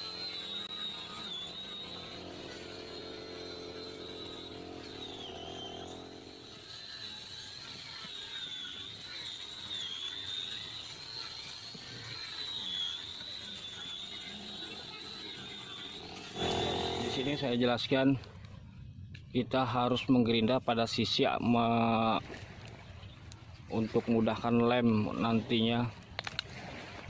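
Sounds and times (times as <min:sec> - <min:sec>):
angle grinder whining: 0:00.0 - 0:17.6.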